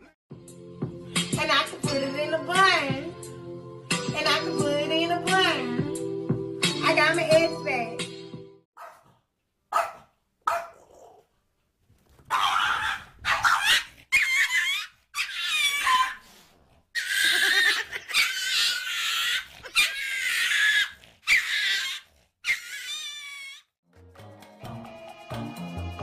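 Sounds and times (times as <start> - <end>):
animal crying out high-pitched: 12.3 - 16.2, 17.0 - 23.7.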